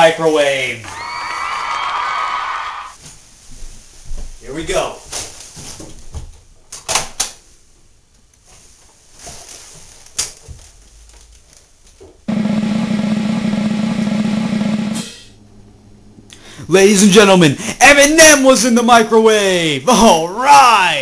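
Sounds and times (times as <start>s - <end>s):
snare drum roll: 12.3s - 15.4s.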